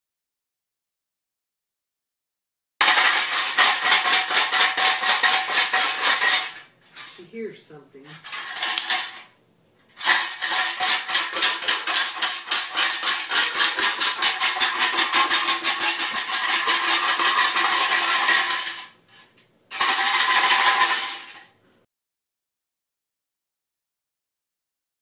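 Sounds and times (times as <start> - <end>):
loud rapid rattle: 2.8 - 7.2, 8.2 - 9.3, 10.0 - 19.0, 19.7 - 21.5.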